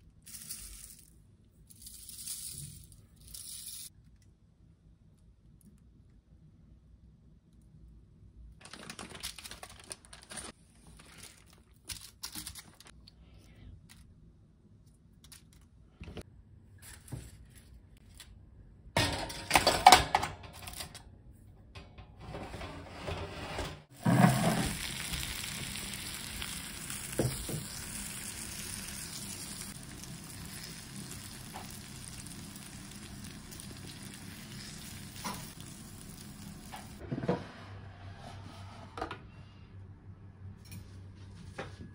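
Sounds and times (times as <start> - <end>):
loud foil crinkling: 8.6 - 12.9, 24.6 - 37.0.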